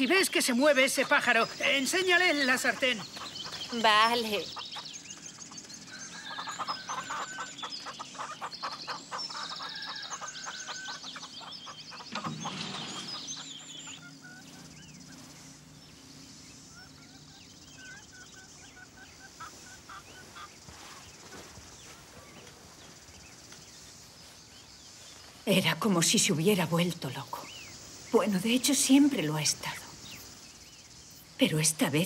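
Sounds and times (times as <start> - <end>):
small birds chirping: 0.0 - 32.0
fowl clucking: 6.3 - 14.6.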